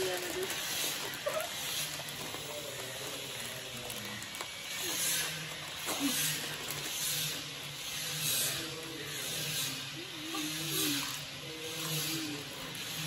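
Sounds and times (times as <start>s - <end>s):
chips being crunched: 0.0s - 7.5s
chip packets crinkling: 0.0s - 9.4s.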